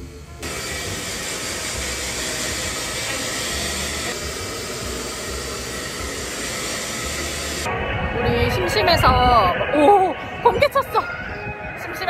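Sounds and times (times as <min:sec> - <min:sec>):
hair dryer blowing: 0:00.4 - 0:07.7.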